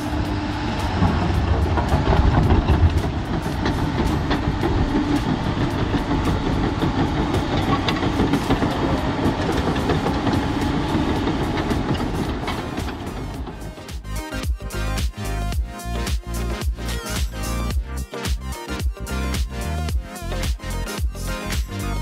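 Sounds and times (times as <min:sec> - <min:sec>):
steel tracks clattering: 0:00.0 - 0:14.7
diesel engine drone: 0:00.0 - 0:22.0.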